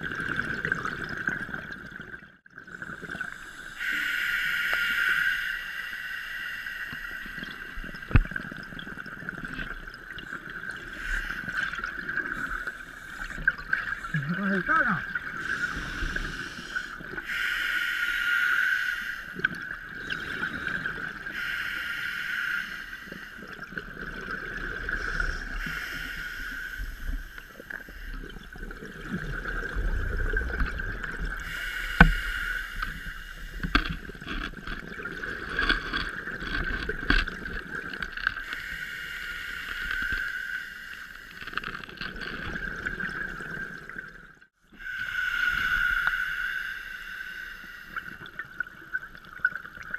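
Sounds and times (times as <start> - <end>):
exhaled bubbles hissing: 0.0 - 49.9
scuba breathing through regulator: 3.0 - 8.2, 10.8 - 14.1, 15.3 - 23.6, 24.8 - 28.5, 31.2 - 34.4, 38.4 - 41.8, 44.8 - 48.4.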